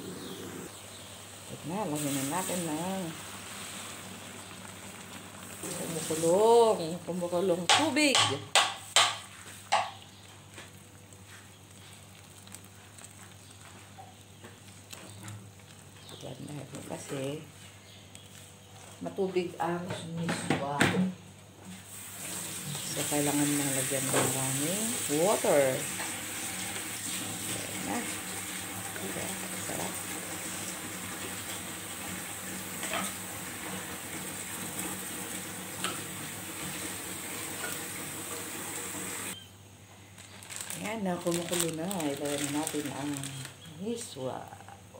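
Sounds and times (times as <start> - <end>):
water heating in a wok: 0.7 - 19.9, 20.6 - 44.9
soup simmering with pops: 3.2 - 5.9, 7.7 - 16.2, 30.0 - 39.4.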